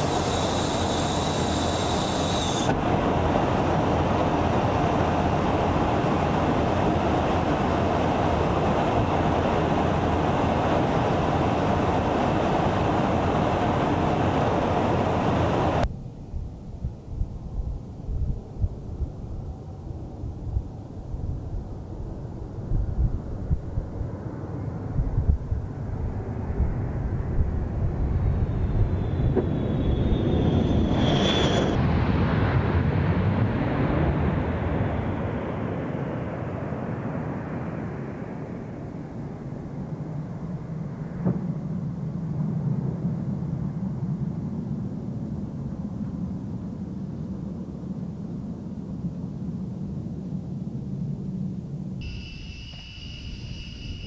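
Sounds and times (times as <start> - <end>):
jet engines rumbling: 0.0 - 15.9, 24.1 - 41.2, 52.0 - 54.0
jet whine sliding down: 0.0 - 15.9, 27.6 - 32.0, 52.0 - 54.0.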